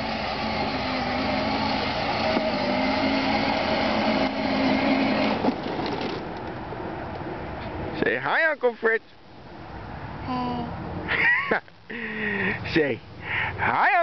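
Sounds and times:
toy vehicle motor whining: 0:00.0 - 0:06.2.

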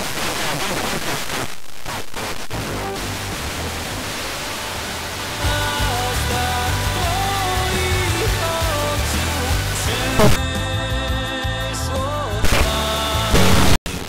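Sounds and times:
radio static hiss: 0:00.0 - 0:05.8, 0:10.1 - 0:10.4, 0:12.4 - 0:14.0
faint radio music: 0:02.2 - 0:10.4.

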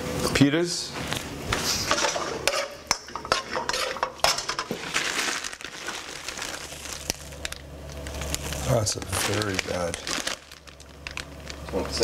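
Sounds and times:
dishes and utensils clinking: 0:01.9 - 0:04.8.

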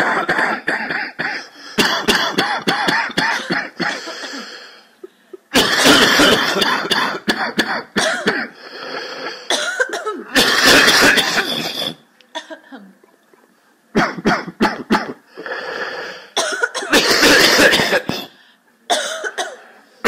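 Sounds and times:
many people coughing: 0:00.0 - 0:12.8, 0:13.9 - 0:15.2, 0:16.3 - 0:19.7.

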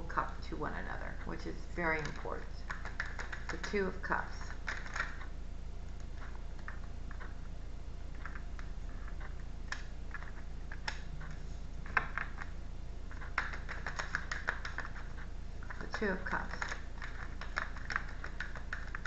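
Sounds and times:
steady low hum: 0:00.0 - 0:19.0
cards being shuffled: 0:02.0 - 0:05.3, 0:08.1 - 0:19.0.

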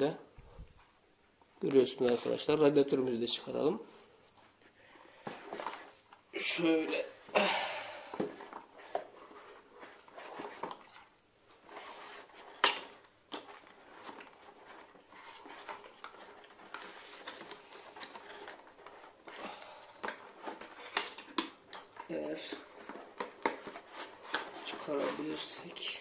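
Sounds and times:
packaging rustling: 0:07.9 - 0:26.0.

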